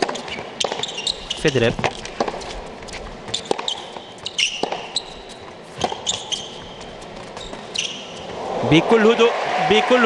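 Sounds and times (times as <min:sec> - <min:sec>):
tennis ball hits and bounces: 0:00.0 - 0:02.5, 0:03.3 - 0:07.6
sneakers squeaking on court: 0:00.0 - 0:08.3.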